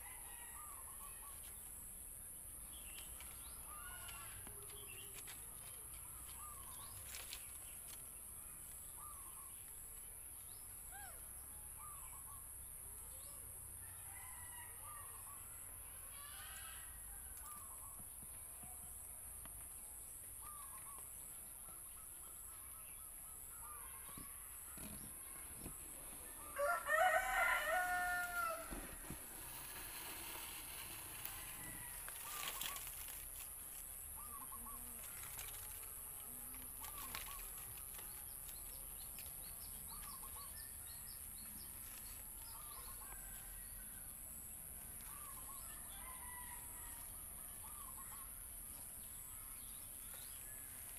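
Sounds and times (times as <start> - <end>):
rooster crowing: 26.4 - 32.4
steady high hiss: 27.5 - 34.6.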